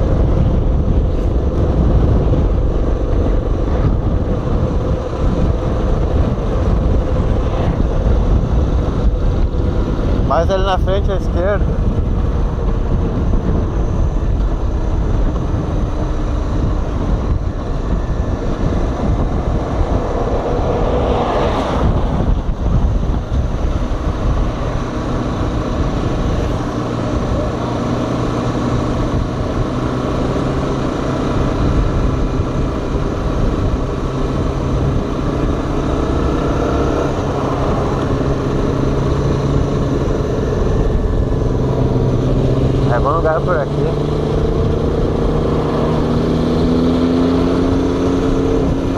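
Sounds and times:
motorcycle engine running: 0.0s - 48.9s
wind noise on microphone: 0.0s - 48.9s.

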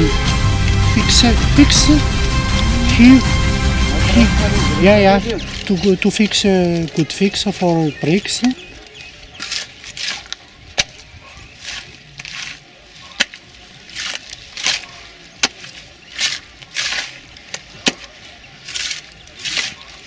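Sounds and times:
shovel scraping through wet clay: 8.6s - 20.0s.

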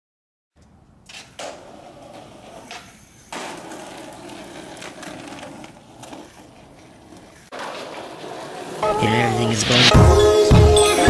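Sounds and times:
skateboard clacks: 0.6s - 9.1s
skateboard wheels rolling on concrete: 0.6s - 11.0s.

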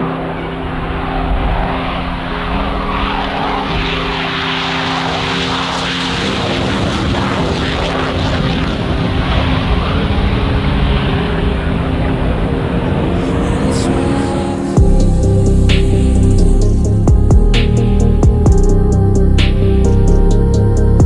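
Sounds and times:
jet engine roar: 0.0s - 18.5s
held synth chords: 0.0s - 21.0s.

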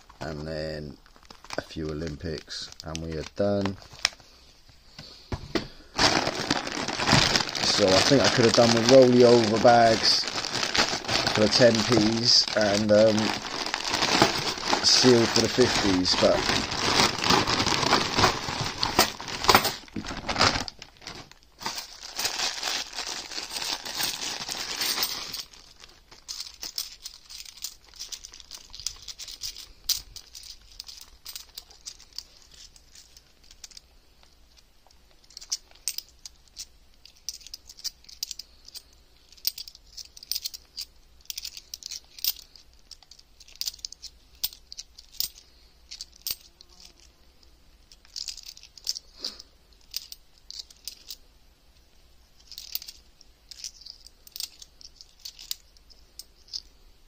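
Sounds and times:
plastic bag crinkling: 5.9s - 33.8s
coins clinking: 7.4s - 19.8s, 23.4s - 33.8s, 52.4s - 56.7s.

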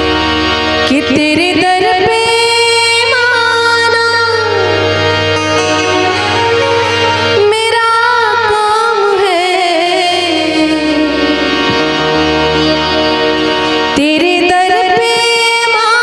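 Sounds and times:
harmonium: 0.0s - 16.0s
woman singing: 0.9s - 6.4s, 7.4s - 11.5s, 14.0s - 16.0s
band playing: 4.0s - 9.4s, 10.9s - 14.0s.

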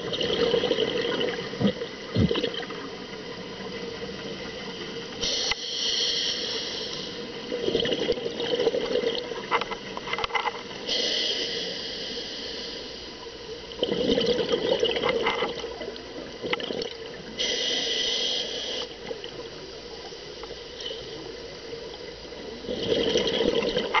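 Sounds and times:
bubbling exhaled air: 0.0s - 2.9s, 5.2s - 9.3s, 13.8s - 15.6s, 22.6s - 24.0s
regulator hiss on inhale: 5.2s - 7.6s, 10.8s - 13.6s, 17.4s - 19.1s.

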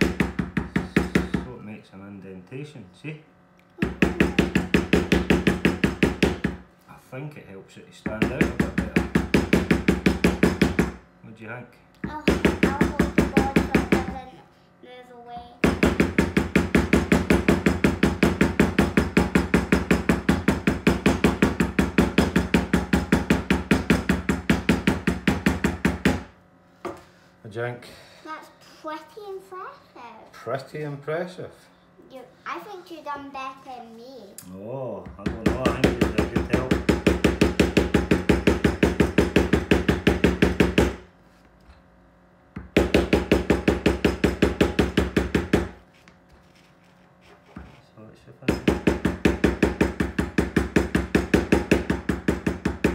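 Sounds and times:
mallet tapping stamping tool: 35.1s - 41.0s, 42.6s - 45.8s, 48.5s - 52.9s.

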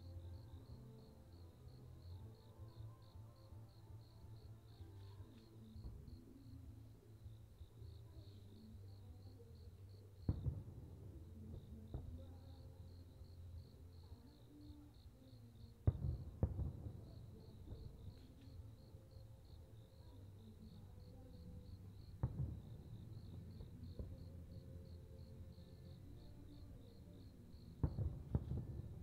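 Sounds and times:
small firework pops: 9.6s - 13.8s, 15.7s - 19.3s, 19.9s - 24.7s, 25.6s - 29.0s.

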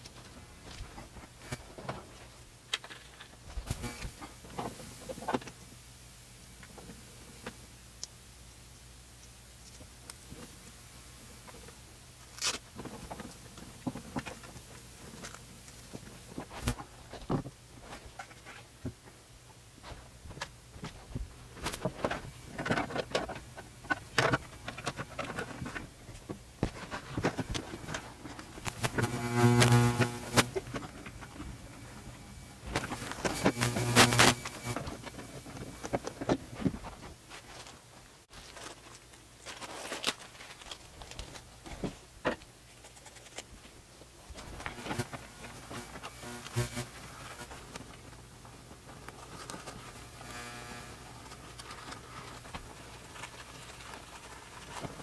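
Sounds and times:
cables and plastic rustling: 0.0s - 5.8s, 11.3s - 55.0s
steady low hum: 0.0s - 38.3s, 43.8s - 55.0s
rasping zip: 28.6s - 30.6s, 32.8s - 34.9s, 44.7s - 47.5s.

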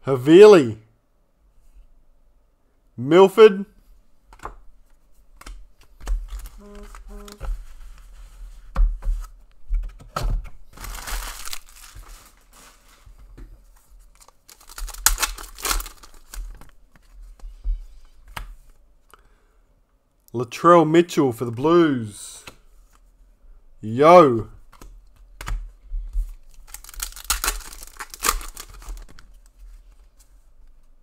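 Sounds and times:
card packs tearing: 10.7s - 12.8s, 14.2s - 16.6s, 26.5s - 29.3s
wrappers crinkling: 10.7s - 13.1s, 14.0s - 16.8s, 26.4s - 29.9s.

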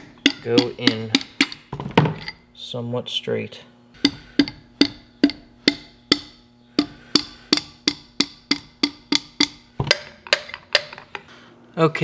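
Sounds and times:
rubber mallet tapping metal: 0.0s - 2.4s, 4.0s - 11.2s.

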